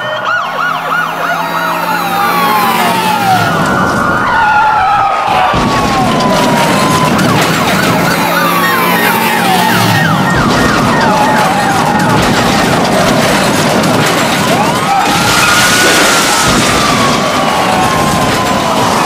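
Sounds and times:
police sirens wailing: 0.0s - 19.0s.

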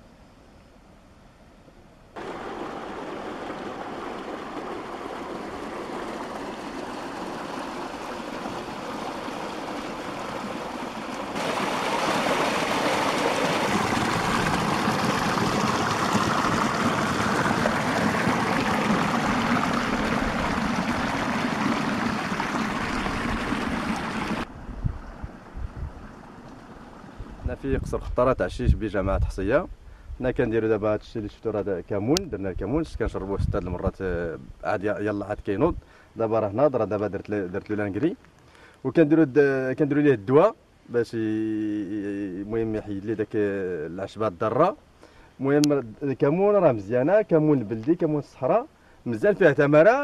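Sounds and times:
water rushing through channel: 2.2s - 24.5s.

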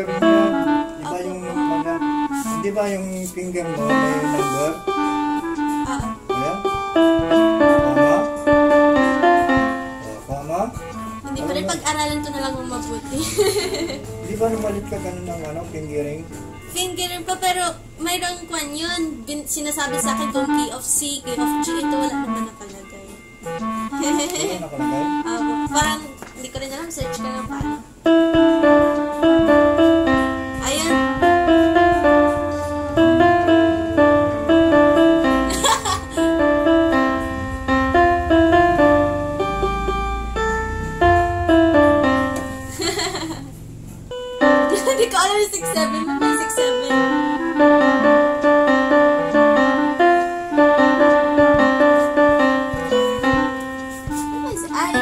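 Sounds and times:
slow electronic keyboard tune: 0.0s - 55.0s.

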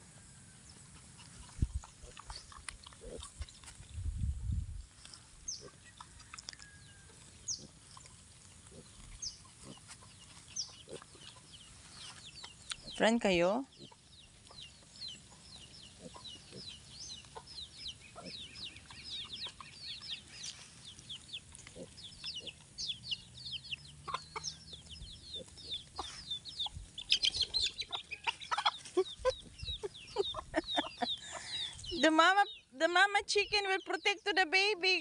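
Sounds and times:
chicks peeping: 7.2s - 32.7s
hen clucking: 8.7s - 32.6s.

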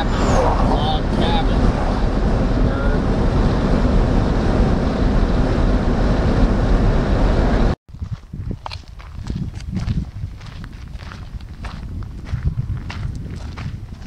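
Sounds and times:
road and engine noise in vehicle: 0.0s - 7.8s
footsteps on gravel: 7.9s - 14.0s.

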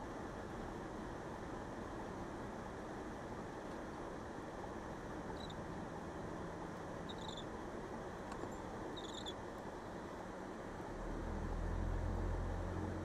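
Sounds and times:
road and tyre noise inside car: 0.0s - 13.0s
faint high-pitched squeaks: 5.3s - 5.6s, 7.0s - 7.5s, 8.4s - 9.4s.

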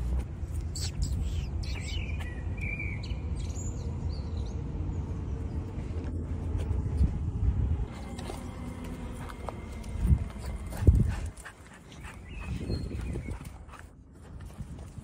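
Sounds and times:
low outdoor rumble: 0.0s - 15.0s
small birds chirping: 0.6s - 5.8s, 8.0s - 13.9s.

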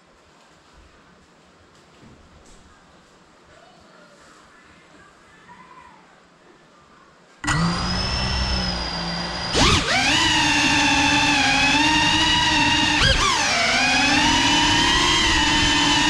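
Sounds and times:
faint room hiss: 0.0s - 7.4s
drone motors whining: 7.4s - 16.0s.

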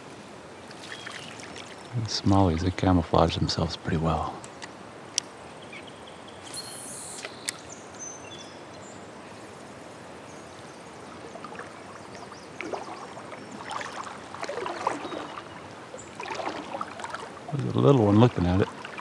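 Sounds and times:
shallow river flowing: 0.0s - 19.0s
water sloshing and splashing: 0.6s - 2.8s, 10.9s - 19.0s.

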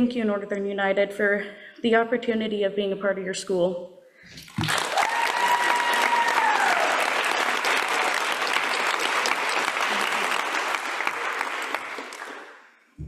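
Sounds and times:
audience applauding: 4.4s - 12.7s.

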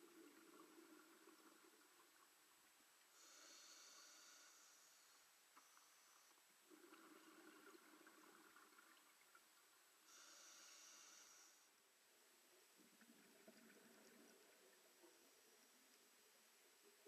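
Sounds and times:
regulator hiss: 3.2s - 6.3s, 10.1s - 11.7s
underwater bubbles burbling: 6.7s - 9.4s, 12.8s - 15.2s.

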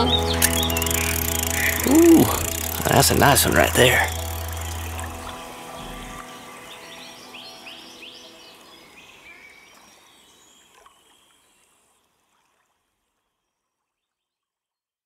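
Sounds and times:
bird chirps: 0.0s - 3.0s
moving water: 0.0s - 14.1s.

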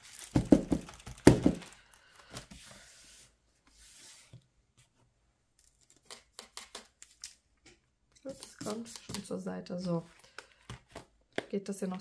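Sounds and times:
plastic sleeves and paper rustling: 0.0s - 4.3s, 8.2s - 11.1s.

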